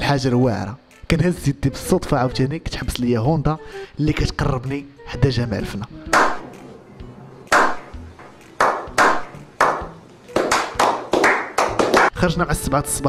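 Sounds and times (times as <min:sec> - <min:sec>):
hand claps: 0:06.1 - 0:06.4, 0:07.5 - 0:07.8, 0:08.4 - 0:12.2.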